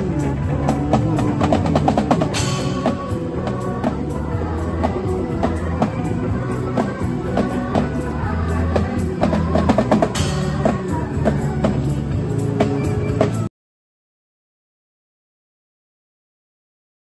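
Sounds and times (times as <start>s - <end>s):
drum kit beat: 0.0s - 13.5s
music with held bass notes: 0.0s - 13.5s
cymbal crash: 2.3s - 3.2s.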